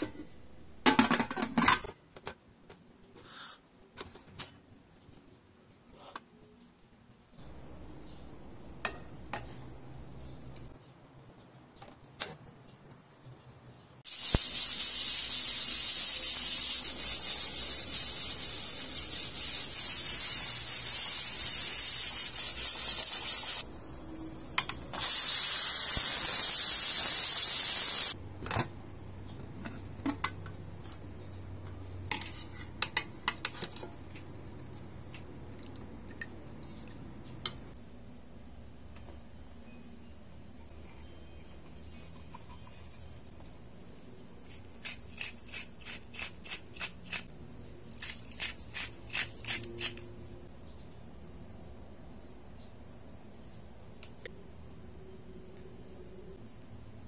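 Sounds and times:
pressure cooker steam hissing: 0:14.1 - 0:23.6, 0:24.5 - 0:28.2.

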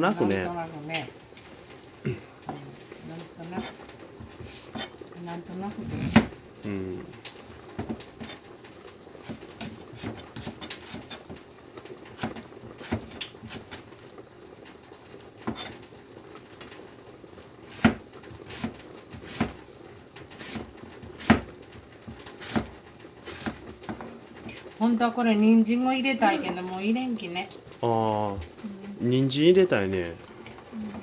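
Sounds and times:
knife cutting vegetables on board: 0:12.2 - 0:13.8, 0:17.7 - 0:19.6, 0:20.4 - 0:21.5, 0:22.4 - 0:23.6.

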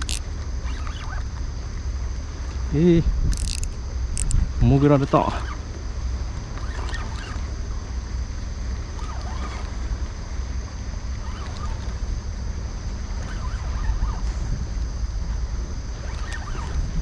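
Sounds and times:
water lapping around kayak: 0:00.0 - 0:17.0
wind buffeting microphone: 0:03.0 - 0:04.9, 0:13.1 - 0:17.0.

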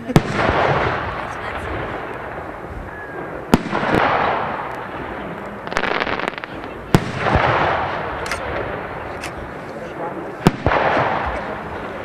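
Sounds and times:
firework crackles: 0:00.0 - 0:12.0
firework shells bursting: 0:05.7 - 0:08.6.

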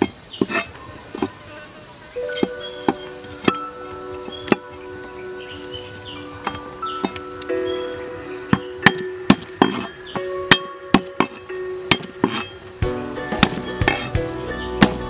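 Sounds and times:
cleaver chopping on wooden board: 0:08.9 - 0:09.9, 0:10.5 - 0:12.4, 0:13.3 - 0:14.1.

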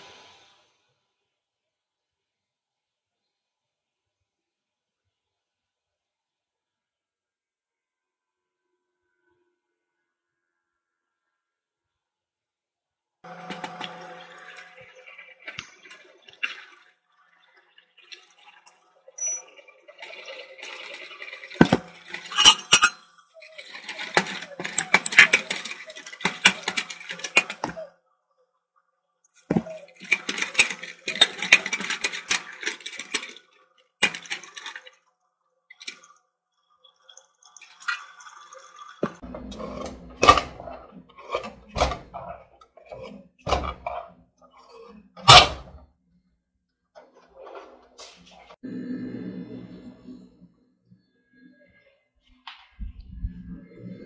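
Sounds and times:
wooden stick scraping metal pot: 0:39.0 - 0:45.8.

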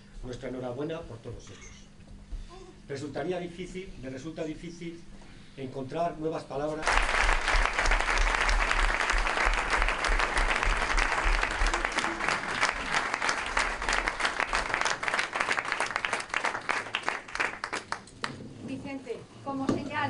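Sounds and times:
audience applauding: 0:06.8 - 0:18.4.

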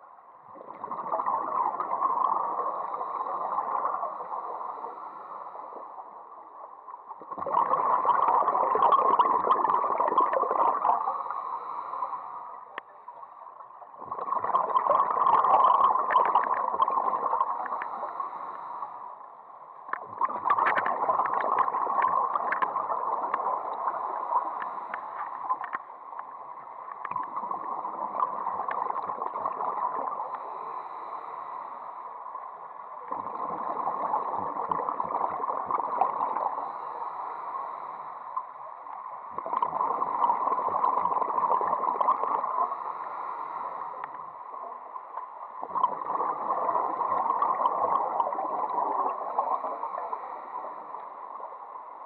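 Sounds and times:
gurgling underwater bubbles: 0:00.0 - 0:05.1, 0:07.1 - 0:11.8, 0:13.9 - 0:18.8, 0:19.9 - 0:31.0, 0:33.0 - 0:37.1, 0:39.2 - 0:44.6, 0:45.5 - 0:51.5
quiet water noise: 0:00.0 - 0:52.0.

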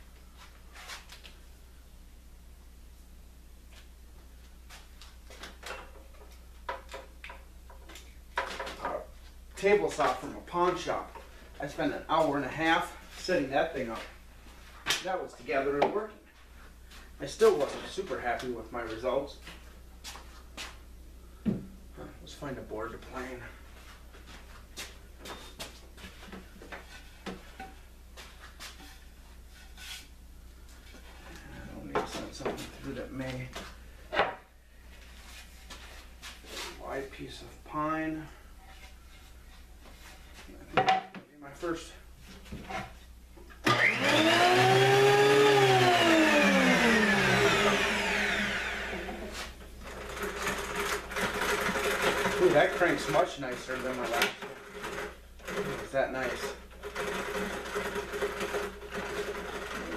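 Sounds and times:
planer motor whining: 0:43.7 - 0:50.3.

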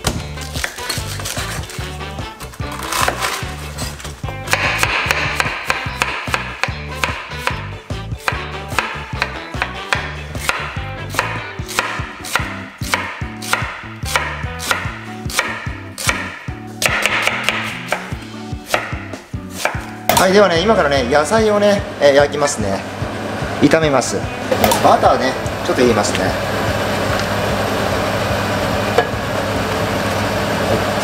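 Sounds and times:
knife chopping cabbage on wood: 0:00.0 - 0:20.3
low background music: 0:00.0 - 0:31.0.

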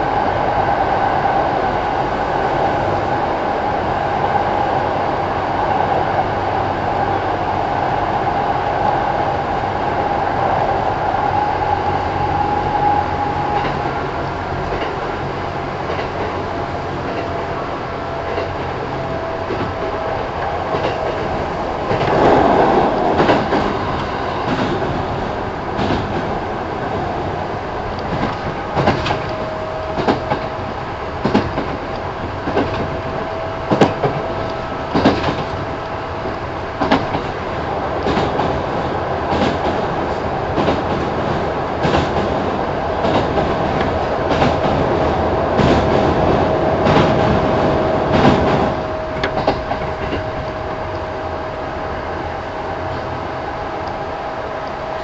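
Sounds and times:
train rumble: 0:00.0 - 0:55.0
wheels clicking over rail joints: 0:48.1 - 0:51.0.

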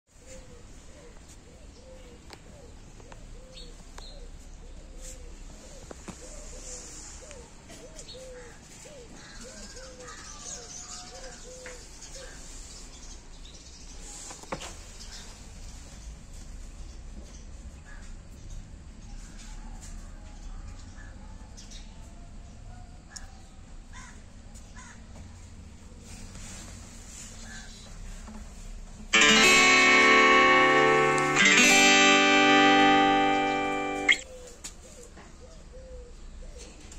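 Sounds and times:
strummed string chords: 0:29.1 - 0:34.2.

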